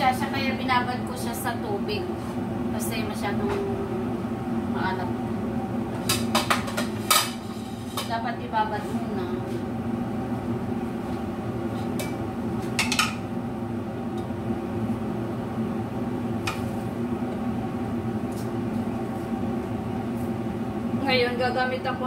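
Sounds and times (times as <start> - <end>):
kitchen appliance humming: 0.0 - 22.0
kitchenware clinking: 12.8 - 13.2.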